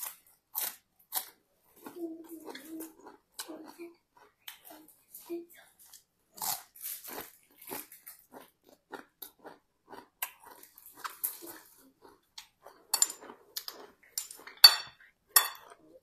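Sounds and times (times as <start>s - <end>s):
chewing crisp lettuce: 0.0s - 14.6s
spoon clinking against plate: 12.9s - 13.2s, 14.2s - 15.8s.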